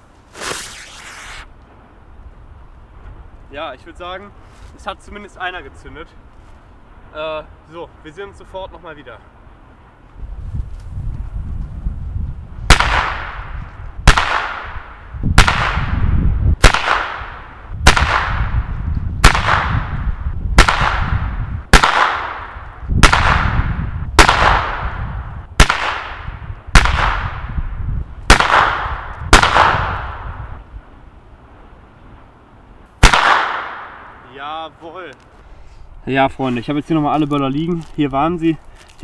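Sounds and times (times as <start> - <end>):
firecrackers exploding with echo: 0.3 - 1.5, 12.7 - 18.6, 19.2 - 20.0, 20.6 - 27.5, 28.3 - 30.5, 33.0 - 34.2.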